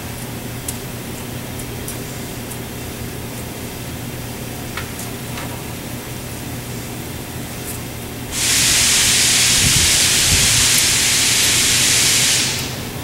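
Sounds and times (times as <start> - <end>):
loud steady hiss: 8.3 - 13.0.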